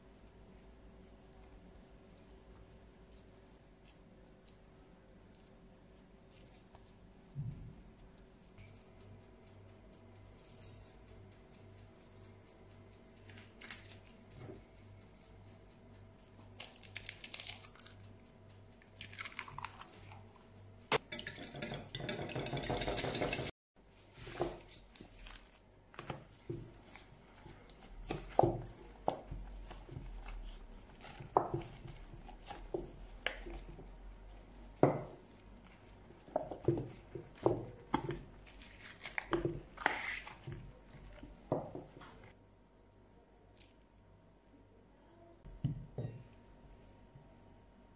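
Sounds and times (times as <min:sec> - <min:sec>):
soft noodle squishes: 0:00.0 - 0:08.9, 0:23.9 - 0:42.4.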